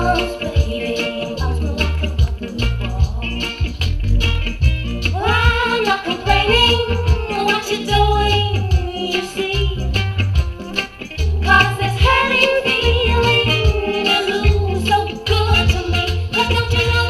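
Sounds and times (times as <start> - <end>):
bouncing bass line: 0.0 - 0.8, 1.4 - 9.0, 9.6 - 17.0
woman singing reggae: 0.0 - 17.0.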